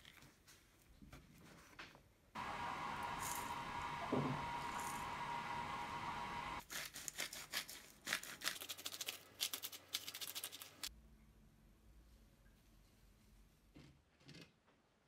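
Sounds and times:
steady hiss: 2.4s - 6.6s
salt grinder crunching crystals: 3.0s - 3.6s, 6.6s - 10.8s.

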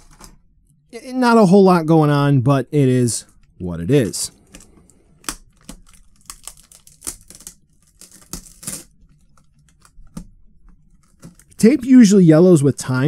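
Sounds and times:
plastic packaging crinkling: 3.3s - 11.9s
packing tape peeling: 4.4s - 10.3s.

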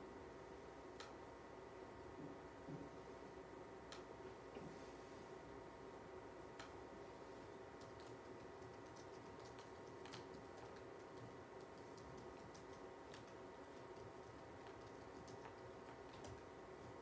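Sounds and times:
faint steady hum: 0.0s - 17.0s
pens clicking and tapping: 7.8s - 16.5s.

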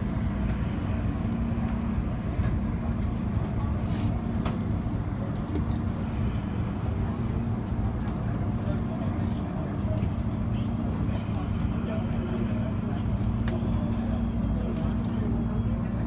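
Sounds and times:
train rumble inside carriage: 0.0s - 16.0s.

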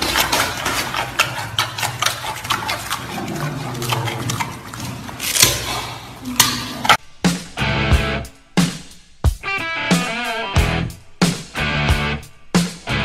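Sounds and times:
animal crunching carrot: 0.0s - 7.0s.

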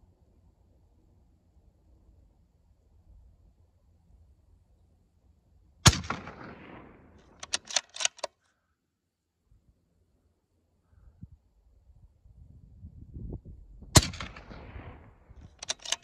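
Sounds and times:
suppressed rifle shot: 5.8s - 8.3s, 14.0s - 16.0s
rifle bolt clicking: 7.2s - 8.3s, 15.6s - 16.0s.

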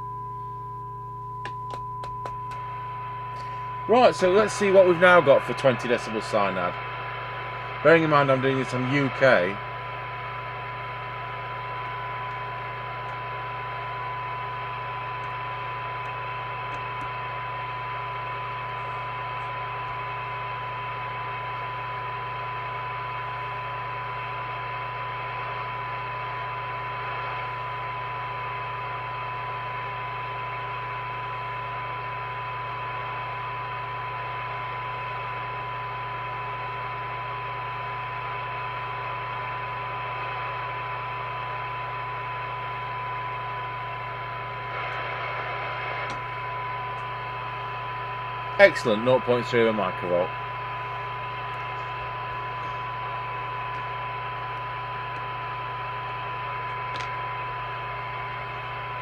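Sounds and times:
steady test tone: 0.0s - 24.2s, 37.5s - 59.0s
low hum: 0.0s - 59.0s
receiver hiss: 1.2s - 59.0s.

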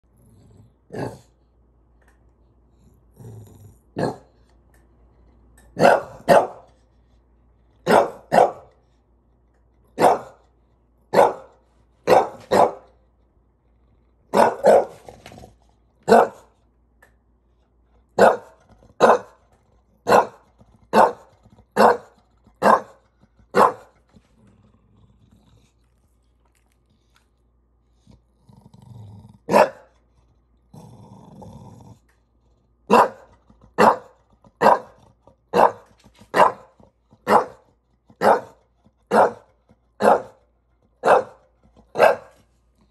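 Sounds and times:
dog barking: 4.0s - 4.3s, 5.8s - 6.7s, 7.8s - 8.7s, 10.0s - 10.4s, 11.1s - 12.9s, 14.3s - 15.0s, 16.1s - 16.5s, 18.2s - 19.4s, 20.0s - 24.0s, 29.5s - 29.9s, 32.9s - 37.6s, 38.2s - 40.4s, 41.0s - 42.4s.

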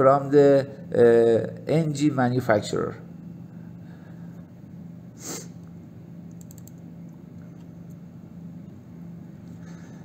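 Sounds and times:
low background hum: 0.0s - 10.0s
faint clicks: 6.3s - 7.2s.

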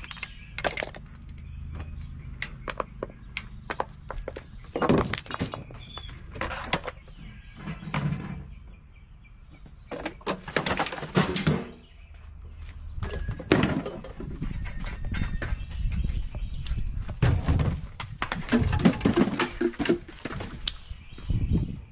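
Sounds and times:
balls rolling down wooden ramps: 0.0s - 8.9s, 13.1s - 16.0s, 17.1s - 20.7s
parts knocking and clattering: 0.0s - 12.0s, 13.0s - 20.8s.

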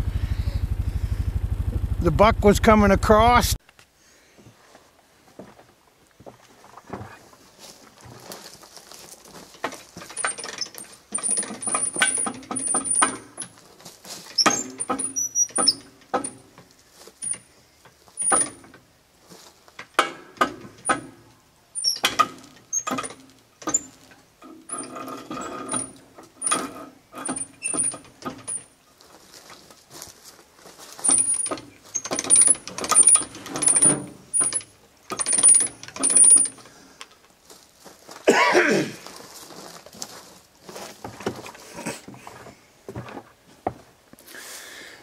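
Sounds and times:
hand hoist clicking: 9.6s - 13.6s, 14.3s - 16.5s, 21.8s - 28.7s, 31.0s - 36.7s
short high squeaks: 14.3s - 15.9s, 21.8s - 23.0s.

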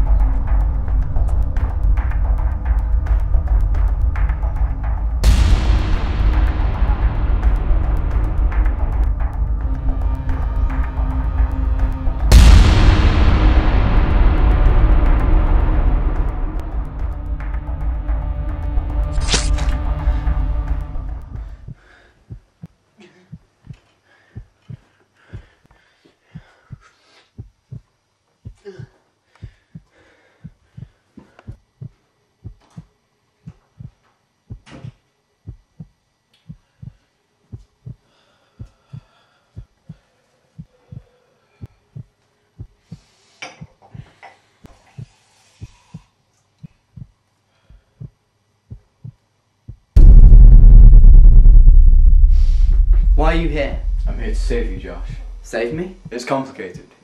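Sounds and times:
eerie music: 0.0s - 21.7s, 50.0s - 55.6s
heartbeat thuds: 0.0s - 22.7s, 26.4s - 28.6s, 29.4s - 34.7s, 35.4s - 40.0s, 41.9s - 43.0s, 46.9s - 47.2s, 48.0s - 56.2s.

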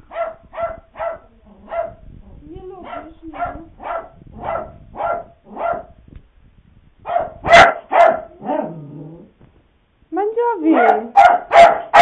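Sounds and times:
puppy barking: 0.0s - 2.0s, 2.8s - 6.0s, 7.1s - 8.8s, 10.7s - 12.0s.

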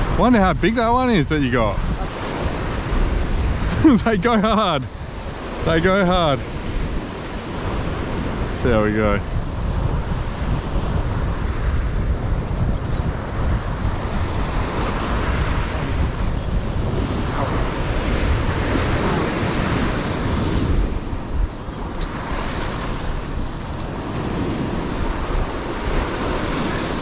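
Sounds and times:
sea waves washing: 0.0s - 27.0s
wind rumbling on microphone: 0.0s - 27.0s.

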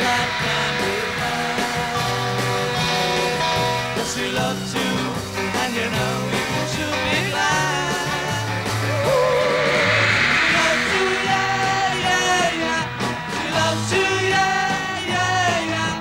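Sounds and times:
rock and roll band playing: 0.0s - 16.0s
person singing: 6.8s - 12.8s
cymbals crashing: 8.4s - 12.8s.

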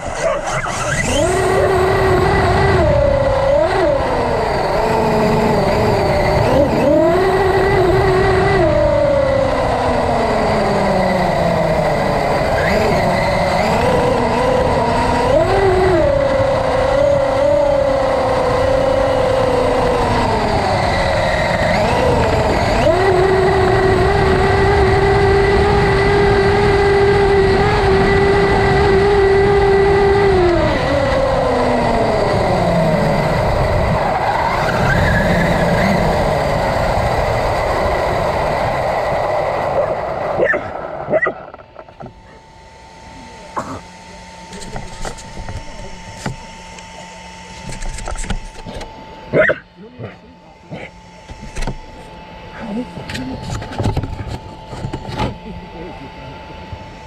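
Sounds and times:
electric motor whine: 0.0s - 57.0s.

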